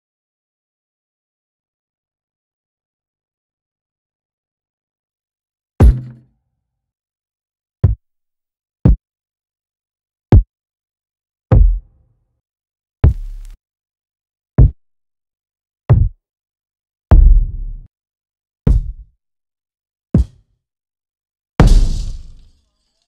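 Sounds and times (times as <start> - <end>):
hip hop kick drum hits: 5.8 - 6.2, 11.5 - 11.8, 13.0 - 13.4, 15.9 - 16.2, 17.1 - 17.9, 18.7 - 19.0, 20.2 - 20.4, 21.6 - 22.4.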